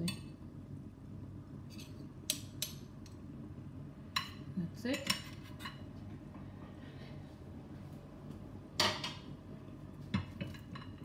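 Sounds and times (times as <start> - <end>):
low steady hum: 0.0 - 11.0
utensil clanking on metal dishware: 4.2 - 5.9, 10.2 - 11.0.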